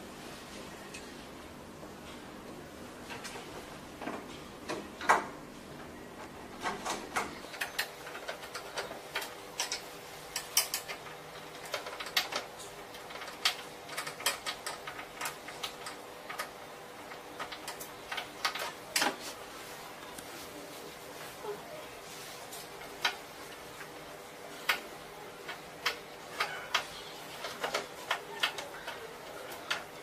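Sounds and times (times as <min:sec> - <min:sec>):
machine parts clicking and knocking: 0:06.6 - 0:19.2, 0:22.7 - 0:30.0.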